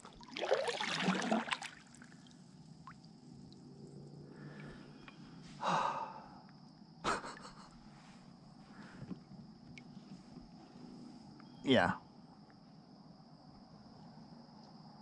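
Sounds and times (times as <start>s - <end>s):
kayak paddle splashing water: 0.0s - 2.0s.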